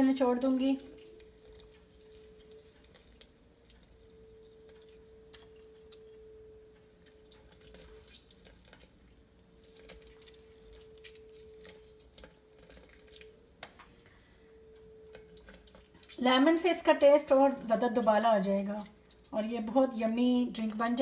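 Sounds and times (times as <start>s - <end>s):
faint drips: 0.0s - 16.4s, 17.4s - 20.0s
faint hum: 0.0s - 21.0s.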